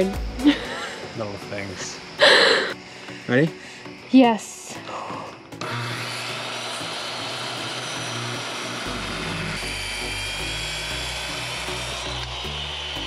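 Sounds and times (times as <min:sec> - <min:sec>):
circular saw cutting wood: 0:04.6 - 0:13.0.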